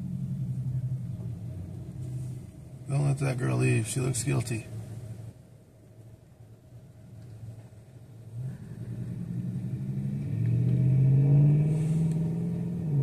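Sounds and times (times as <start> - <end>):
vehicle engine driving past: 8.3 - 13.0.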